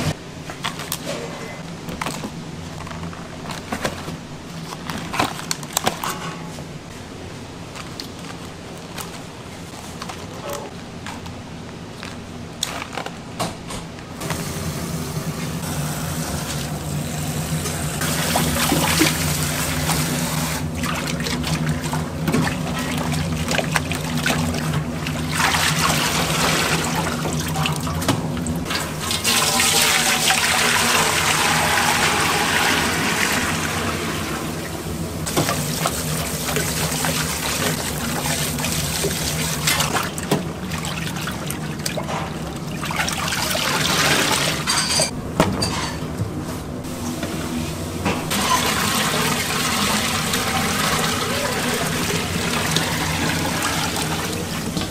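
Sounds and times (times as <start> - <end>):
water running from a tap: 14.3 - 34.6, 35.3 - 41.9, 48.3 - 54.8
water sloshing in steel basin: 16.4 - 31.3, 35.2 - 45.1
hands squeezing wet cloth bag: 18.0 - 27.9, 35.3 - 44.6.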